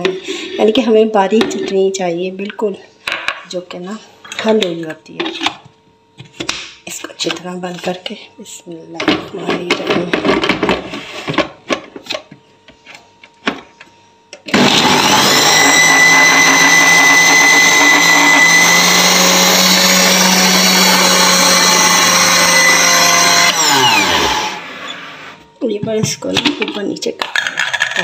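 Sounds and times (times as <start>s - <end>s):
blender motor running: 14.5s - 25.4s.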